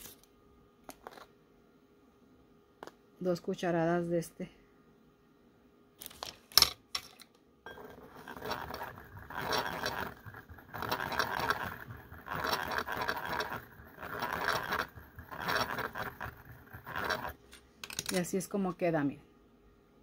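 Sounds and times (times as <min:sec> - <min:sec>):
whisk scraping glass bowl: 0:07.7 - 0:17.5.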